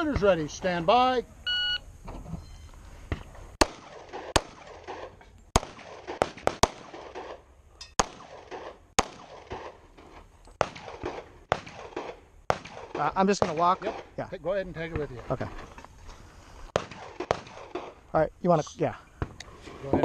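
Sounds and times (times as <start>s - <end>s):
pistol shots with echo: 3.6s - 7.4s, 8.0s - 9.8s, 10.6s - 14.1s, 16.7s - 18.0s.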